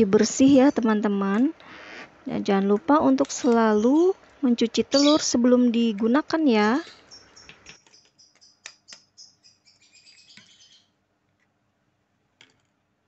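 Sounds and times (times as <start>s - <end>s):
high-pitched chirping: 3.4s - 10.9s.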